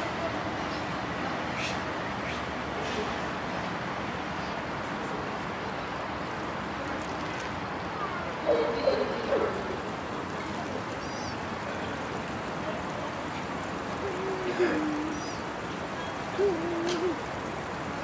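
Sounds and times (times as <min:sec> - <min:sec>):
rushing outdoor background noise: 0:00.0 - 0:18.0
distant voice calling: 0:08.0 - 0:13.2, 0:13.9 - 0:17.8.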